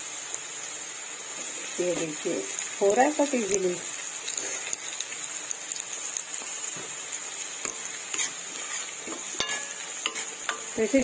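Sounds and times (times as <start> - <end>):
vegetables sizzling in oil: 0.0 - 11.0
spoon scraping a metal pan: 7.6 - 10.8.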